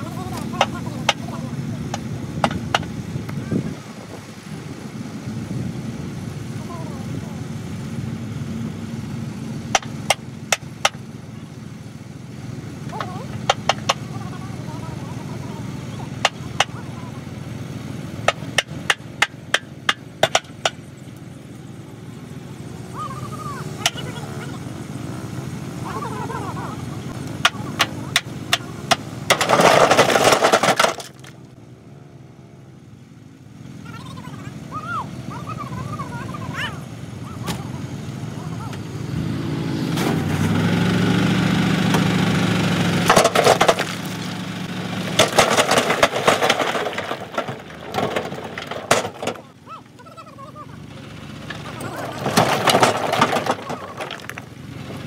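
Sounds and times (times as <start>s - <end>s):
vehicle engine rumble: 0.0s - 55.0s
rocks clattering down: 27.4s - 31.4s, 43.0s - 49.5s, 51.5s - 54.6s
rocks knocking against rock: 43.1s - 44.3s, 52.2s - 54.5s.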